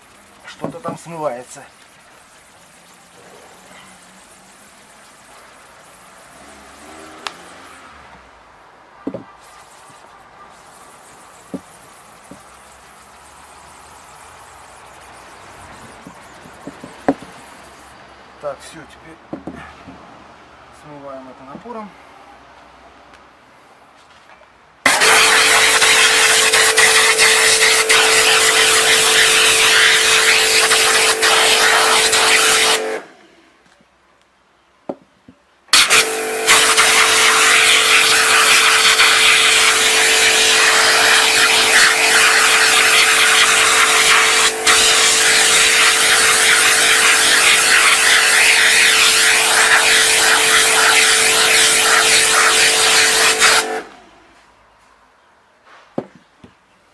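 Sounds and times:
pressure washer spray hiss: 0:00.0 - 0:07.8, 0:24.9 - 0:33.1, 0:35.7 - 0:53.9.

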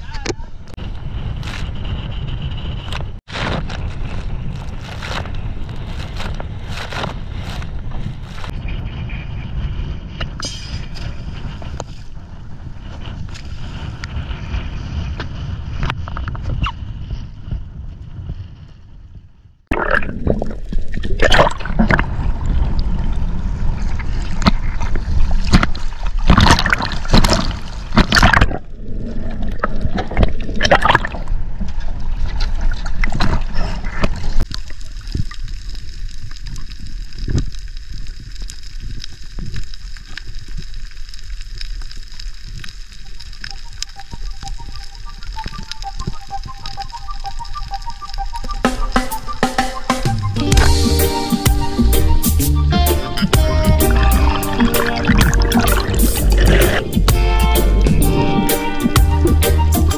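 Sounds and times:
wind on microphone: 0:00.0 - 0:41.2, 0:42.4 - 0:59.9
water rushing and splashing: 0:19.7 - 0:37.8, 0:53.2 - 0:59.2
boat low rumble: 0:42.4 - 0:59.9.

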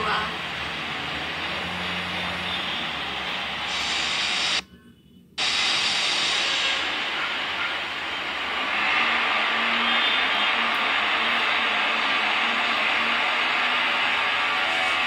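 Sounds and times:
rushing hiss: 0:03.7 - 0:04.6, 0:05.4 - 0:14.8.

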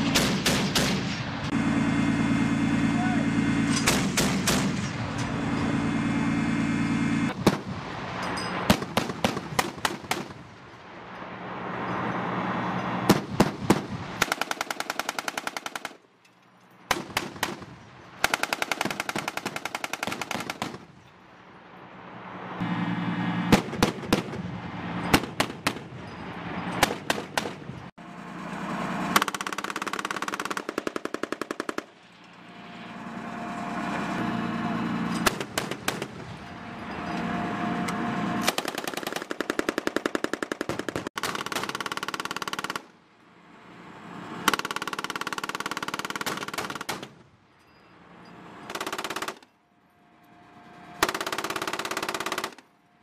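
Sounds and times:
automatic gunfire bursts: 0:13.1 - 0:16.0, 0:16.9 - 0:20.8, 0:51.0 - 0:52.6.

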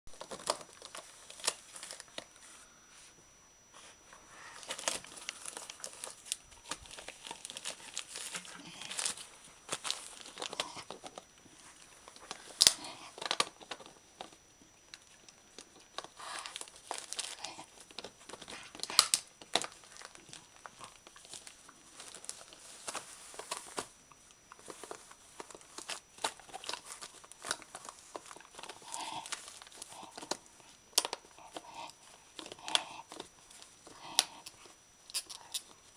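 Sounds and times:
dog ripping wrapping paper: 0:04.6 - 0:11.1, 0:16.0 - 0:17.7.

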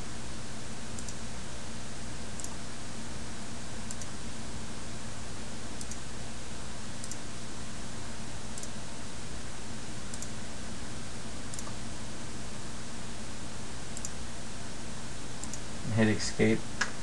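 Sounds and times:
computer mouse clicks: 0:01.0 - 0:01.2, 0:02.4 - 0:02.6, 0:03.9 - 0:04.2, 0:05.8 - 0:06.0, 0:07.0 - 0:07.2, 0:08.6 - 0:08.8, 0:10.1 - 0:10.3, 0:11.5 - 0:11.8, 0:14.0 - 0:14.2, 0:15.4 - 0:15.6.

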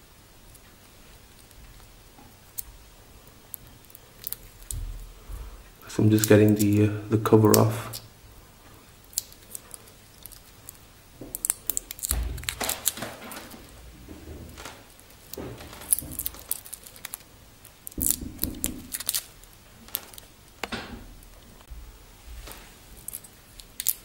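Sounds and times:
plastic film peeling and crinkling: 0:03.5 - 0:05.0, 0:06.0 - 0:06.8, 0:09.0 - 0:21.7, 0:22.4 - 0:24.0.

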